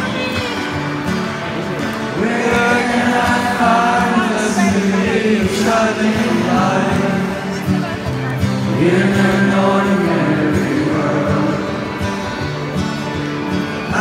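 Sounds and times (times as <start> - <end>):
acoustic guitar strumming: 0.0 - 14.0
man singing into microphone: 2.2 - 7.8, 8.6 - 12.0.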